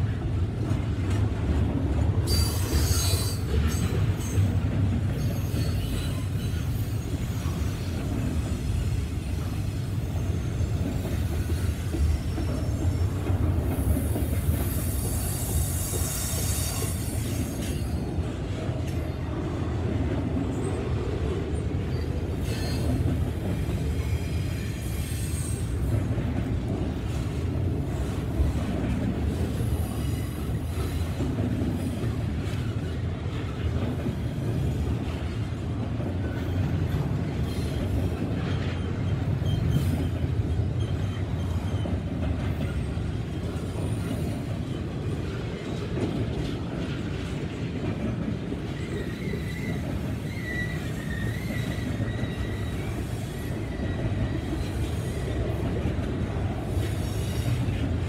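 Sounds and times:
steel wheels rumbling on rail: 0.0 - 58.0
high wheel squeal: 2.3 - 4.6, 13.9 - 18.2, 21.9 - 23.4, 24.0 - 25.9, 37.4 - 42.0, 48.8 - 55.4.

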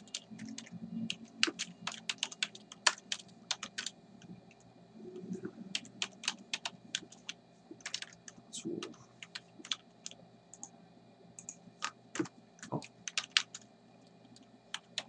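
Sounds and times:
typing on computer keyboard: 0.0 - 3.9, 5.7 - 8.2, 8.8 - 10.2, 11.4 - 13.6, 14.3 - 15.0.

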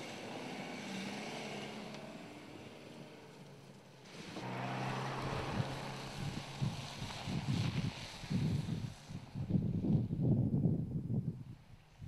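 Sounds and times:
diesel engine driving away: 0.0 - 9.5.

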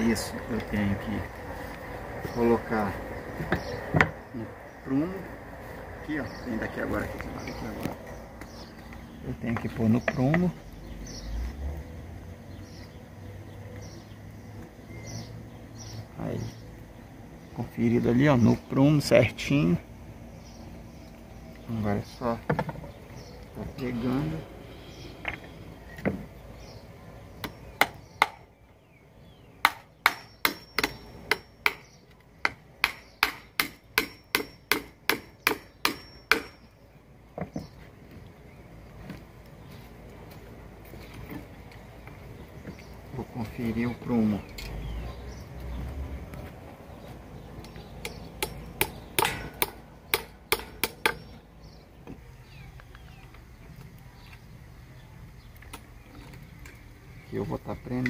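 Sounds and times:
hammer striking a nail: 27.4 - 28.4, 29.6 - 36.6, 48.0 - 51.3.

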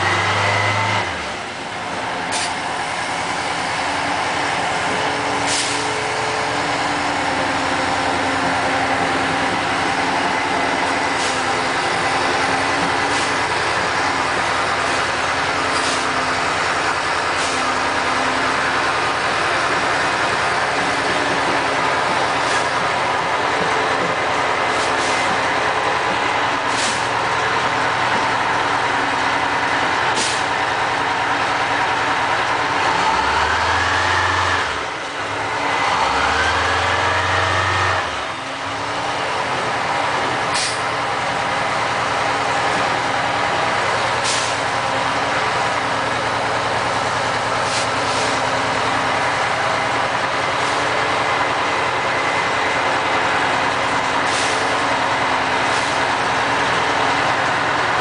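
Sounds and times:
diesel truck engine: 0.0 - 58.0
short sharp hisses: 5.5 - 5.9, 44.2 - 44.6.

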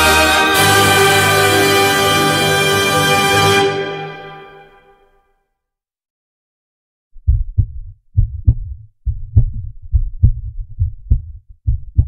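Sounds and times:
heartbeat thumps: 7.2 - 12.0.

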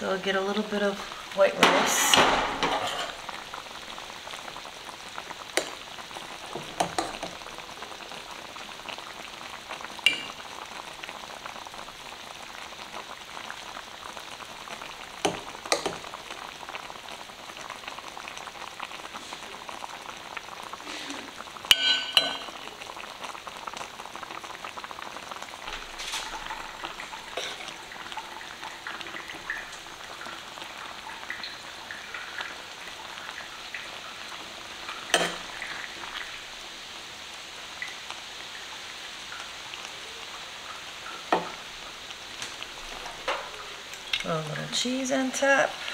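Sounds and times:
steady hiss: 0.0 - 45.9
metal spoon clinking and scraping: 21.7 - 22.5.

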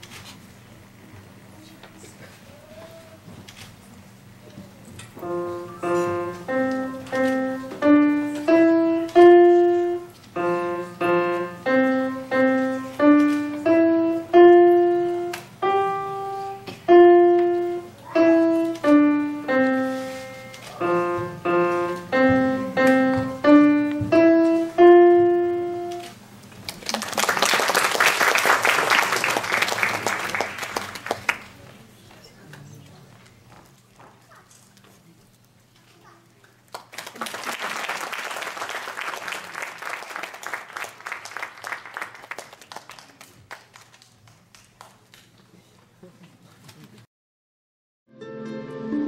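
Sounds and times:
slow piano melody: 5.2 - 26.2, 48.1 - 49.0
audience applause: 26.7 - 31.6, 36.7 - 45.0.

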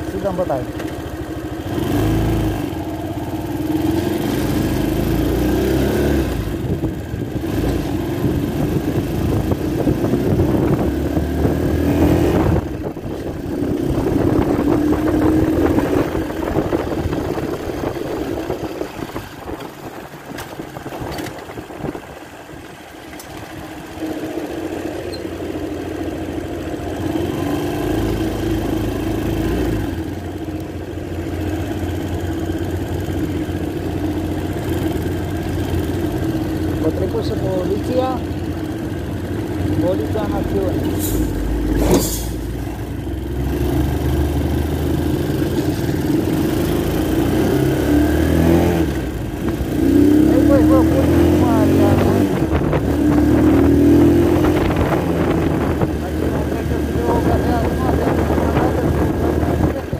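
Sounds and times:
quad bike engine revving: 0.0 - 19.4, 26.1 - 30.6, 31.5 - 59.9.

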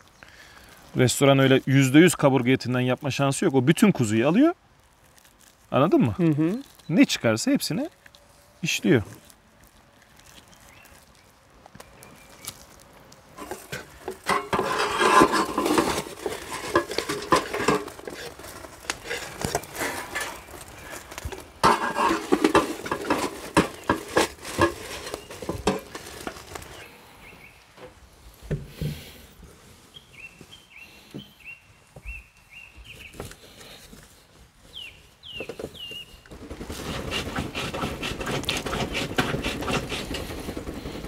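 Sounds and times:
metal skewers and utensils clattering: 13.4 - 26.6
bird chirping: 29.9 - 33.2, 34.7 - 36.3.

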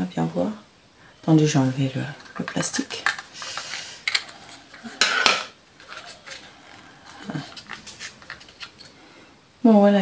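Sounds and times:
scratchy packaging rustle: 2.0 - 9.0.

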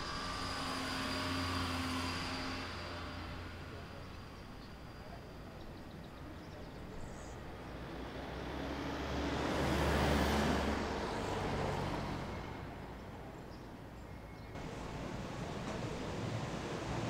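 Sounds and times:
low traffic rumble: 0.0 - 17.0
car driving past: 7.8 - 12.7.

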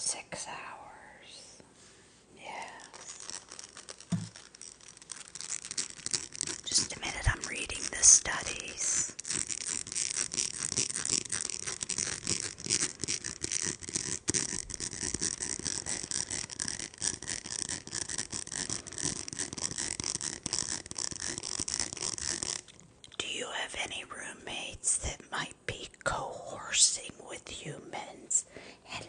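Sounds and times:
plastic slinky coils clicking: 2.5 - 23.2.

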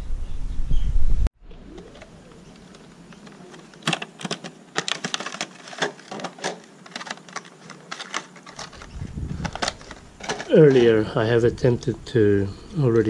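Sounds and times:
plastic packaging crackling: 1.7 - 11.0.

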